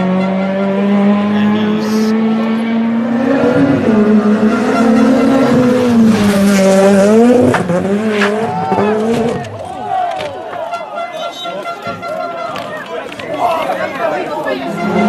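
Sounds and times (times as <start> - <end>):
race car engine revving: 0.0 - 9.6, 14.4 - 15.0.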